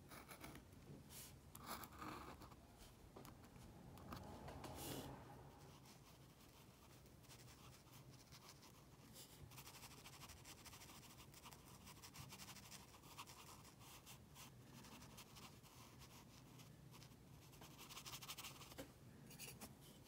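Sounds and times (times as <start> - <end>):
low steady hum: 0.0 - 9.9
brush scratching on paper: 4.4 - 18.7.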